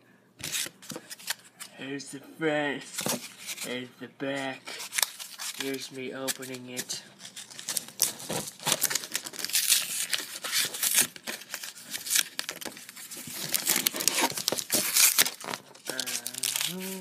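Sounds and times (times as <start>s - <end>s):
foil wrapper tearing and crinkling: 4.8s - 17.0s.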